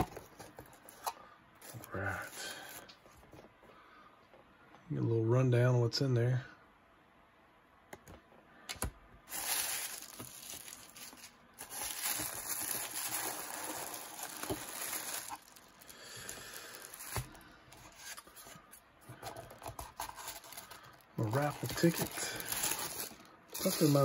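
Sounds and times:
tissue paper crinkling and rustling: 0:09.3 - 0:24.0.

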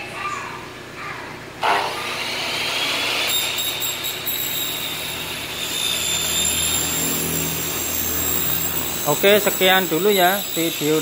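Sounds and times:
miter saw cutting aluminium: 0:01.6 - 0:11.0.

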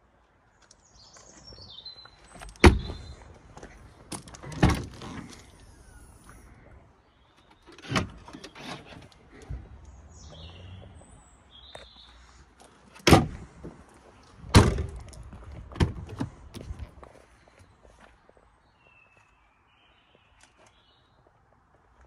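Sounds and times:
car doors clunking shut: 0:02.4 - 0:03.1, 0:04.1 - 0:05.5, 0:07.7 - 0:09.6, 0:12.9 - 0:13.8, 0:14.4 - 0:16.7.

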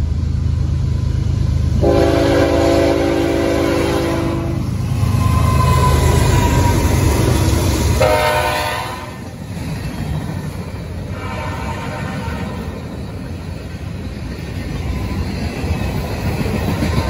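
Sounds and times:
diesel locomotives rumbling: 0:00.0 - 0:17.0
freight cars rolling on rails: 0:00.0 - 0:17.0
train horn blast: 0:01.8 - 0:06.8, 0:08.0 - 0:09.3, 0:11.1 - 0:12.7.

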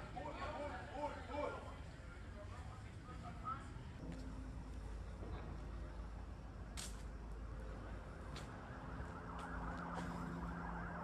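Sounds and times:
low street rumble: 0:00.0 - 0:11.0
distant siren wailing: 0:07.8 - 0:11.0.

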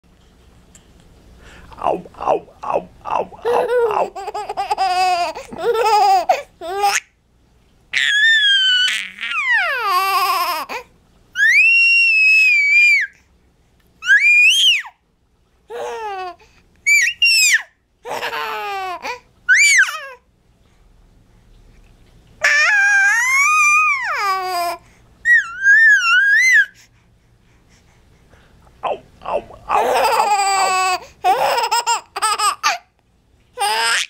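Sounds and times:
baby laughing: 0:03.1 - 0:07.1, 0:15.7 - 0:20.2, 0:29.3 - 0:32.9, 0:33.6 - 0:34.0
baby squealing: 0:08.0 - 0:10.8, 0:14.0 - 0:14.9, 0:16.9 - 0:20.1, 0:22.4 - 0:26.8, 0:29.7 - 0:32.8, 0:33.6 - 0:34.0.

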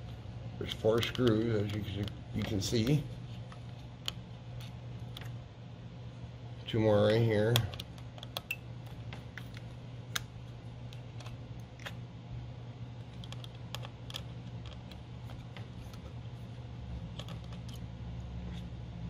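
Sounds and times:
screwdriver and screws clicking: 0:00.6 - 0:03.0.

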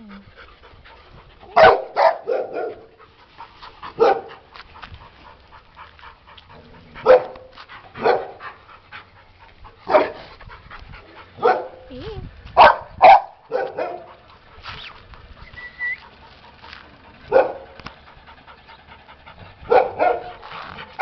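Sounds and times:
dog barking: 0:01.6 - 0:02.9, 0:04.0 - 0:04.4, 0:07.0 - 0:08.4, 0:09.9 - 0:10.2, 0:11.4 - 0:11.8, 0:12.6 - 0:14.1, 0:17.3 - 0:17.7, 0:19.7 - 0:20.4.

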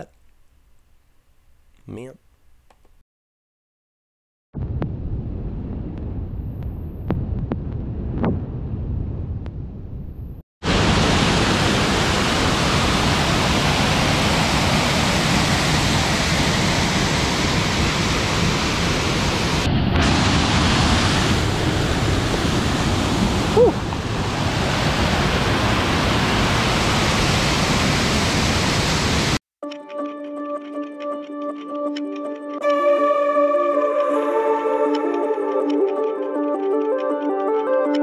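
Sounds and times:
waterfall rushing over rock: 0:10.6 - 0:29.4.

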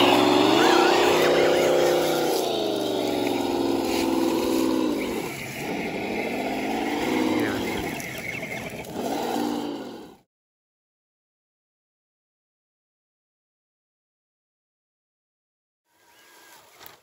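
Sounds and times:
toy car electric motor whine: 0:00.0 - 0:10.2.

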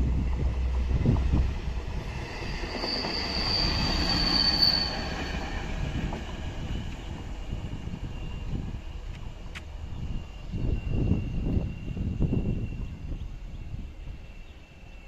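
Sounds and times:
wheels rumbling on rails: 0:00.0 - 0:15.0
high-pitched squeal: 0:02.0 - 0:05.9.

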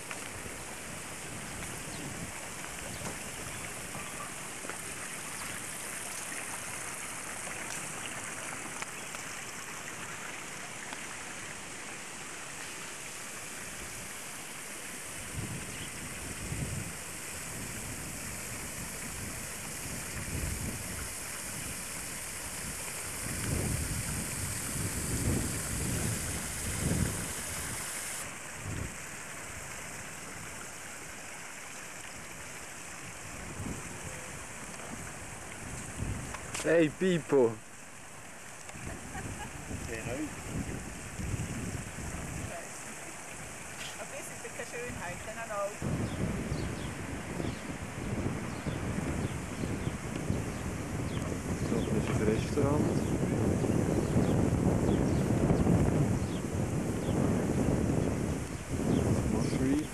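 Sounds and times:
wind buffeting microphone: 0:00.0 - 0:05.4, 0:15.1 - 0:29.1, 0:33.1 - 0:36.8, 0:38.7 - 0:59.9
outdoor hiss: 0:00.0 - 0:59.9.

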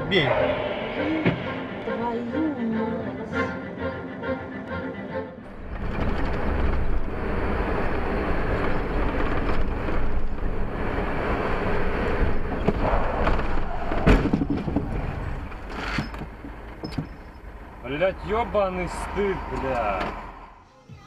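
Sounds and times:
road and wind noise: 0:00.0 - 0:02.7, 0:05.4 - 0:20.6
car collision bang: 0:12.7 - 0:15.6.

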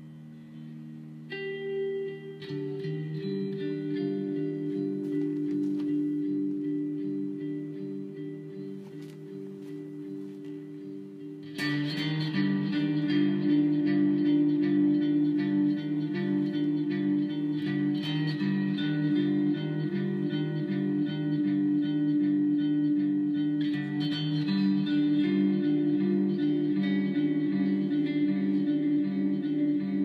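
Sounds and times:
guitar-led background music: 0:00.0 - 0:30.0.

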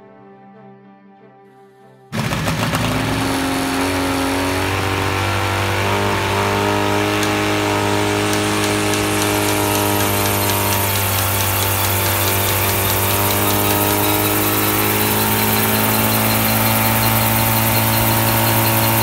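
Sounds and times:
helicopter engine and rotor running: 0:02.2 - 0:19.0.

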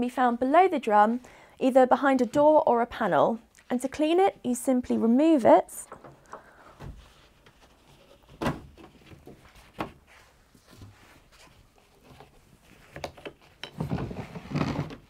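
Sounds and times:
plastic clattering and scraping: 0:05.9 - 0:15.0.

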